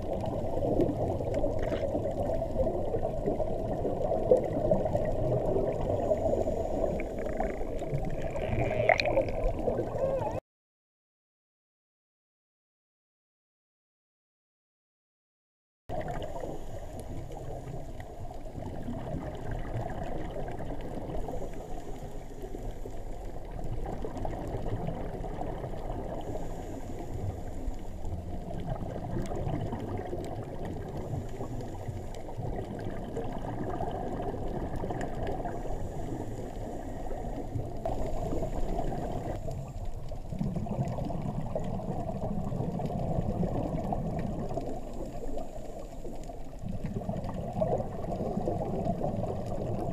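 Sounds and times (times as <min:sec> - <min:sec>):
underwater rush and bubbling: 0:00.0 - 0:10.4, 0:15.9 - 0:49.9
soft hiss: 0:00.2 - 0:08.8, 0:16.1 - 0:18.8, 0:20.1 - 0:24.7, 0:25.4 - 0:33.4, 0:34.1 - 0:40.4.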